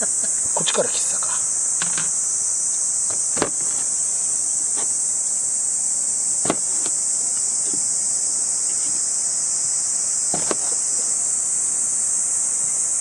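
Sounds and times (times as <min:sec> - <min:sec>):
insects droning: 0:00.0 - 0:13.0
knife knocking on cutting board: 0:10.4 - 0:10.8.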